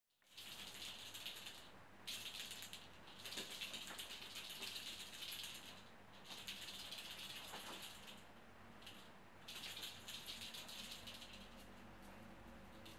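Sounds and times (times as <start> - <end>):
cat toy rattling: 0.4 - 8.2, 8.8 - 11.7.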